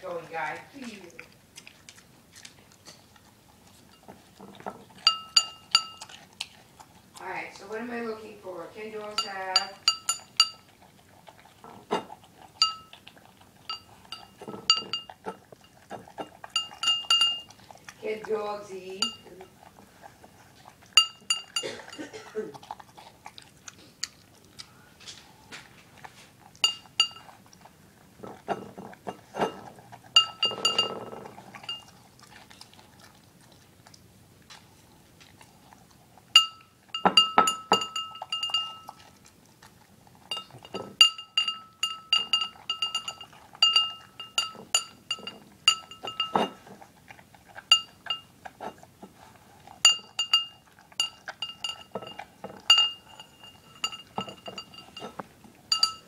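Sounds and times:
ceramic dog bowl clinking: 0:03.8 - 0:06.2, 0:08.8 - 0:10.8, 0:11.6 - 0:19.7, 0:20.9 - 0:22.6, 0:26.6 - 0:27.4, 0:28.2 - 0:32.0, 0:36.3 - 0:39.1, 0:40.2 - 0:46.8, 0:47.6 - 0:48.8, 0:49.8 - 0:56.0.

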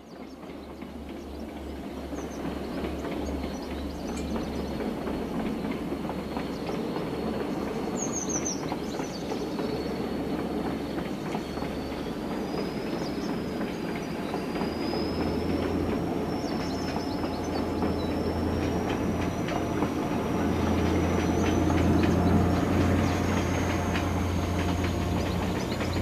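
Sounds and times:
diesel train rumbling: 0:00.0 - 0:26.0.

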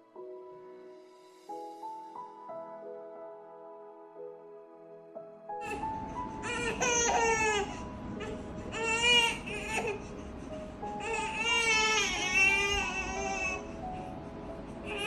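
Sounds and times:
soft background music: 0:00.0 - 0:15.0
baby crying: 0:05.6 - 0:10.1, 0:10.9 - 0:13.8.

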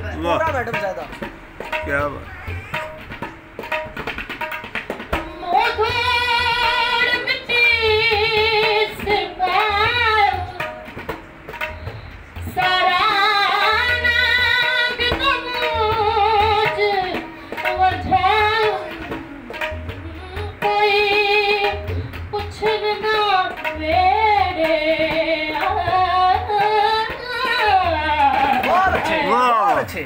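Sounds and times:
low drum beat: 0:00.0 - 0:06.9
woman singing folk song: 0:05.2 - 0:10.7, 0:12.5 - 0:28.6.

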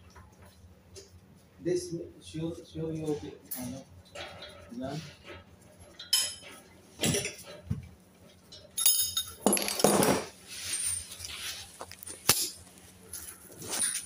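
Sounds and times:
metal tools clinking and knocking: 0:05.3 - 0:07.7, 0:08.3 - 0:14.0
rough handling noise: 0:09.3 - 0:14.0.

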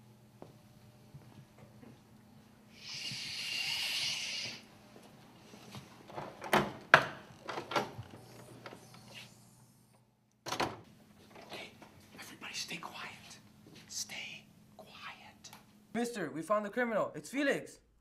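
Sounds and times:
hissing: 0:02.7 - 0:04.7
door shutting and locking: 0:06.1 - 0:08.8, 0:10.4 - 0:11.5.

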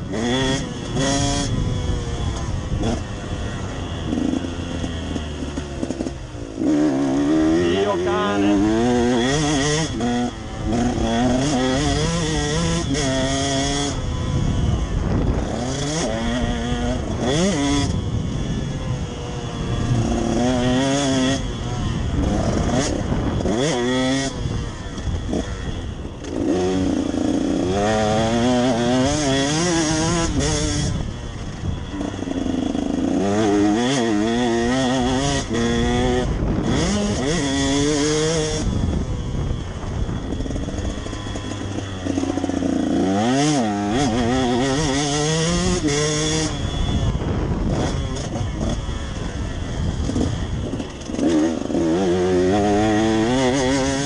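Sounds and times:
motorbike engine revving: 0:00.0 - 0:54.0.

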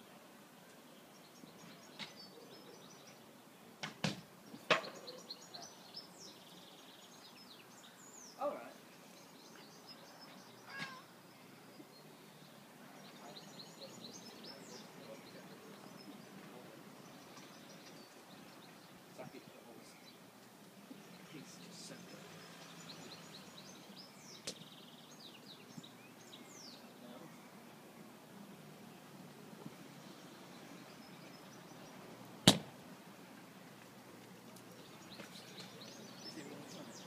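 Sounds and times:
birds singing: 0:00.0 - 0:32.5, 0:33.1 - 0:37.0
rustles: 0:00.0 - 0:37.0
sharp knocks: 0:32.4 - 0:32.7.

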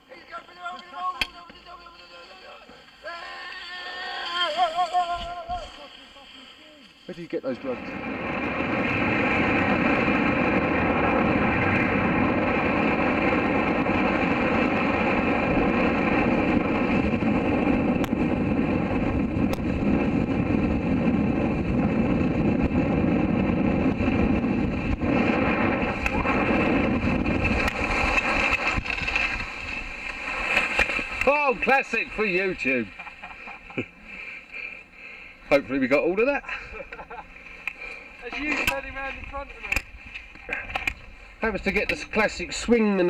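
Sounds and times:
skis hissing on snow: 0:01.7 - 0:07.8, 0:24.5 - 0:32.9
wind rushing over microphone: 0:07.5 - 0:33.0.

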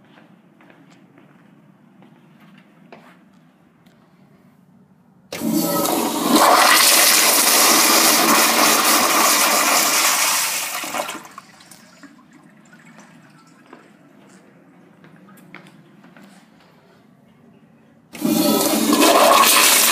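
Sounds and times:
toilet flushing: 0:05.3 - 0:14.1, 0:18.1 - 0:19.9
faint water trickle: 0:11.6 - 0:15.8.

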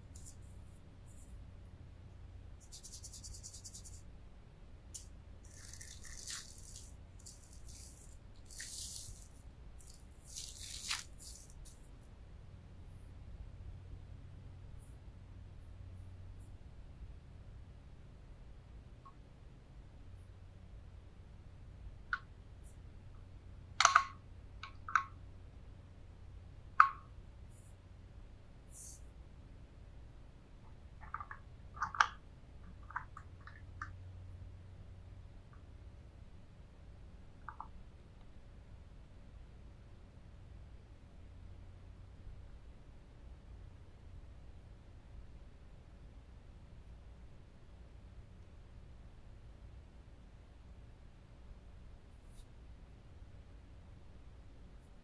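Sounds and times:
plastic bag crinkling: 0:05.4 - 0:11.8.

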